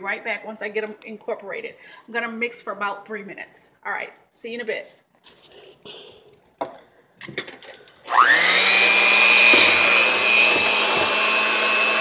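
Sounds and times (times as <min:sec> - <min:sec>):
electric hand mixer whining: 0:08.0 - 0:12.0.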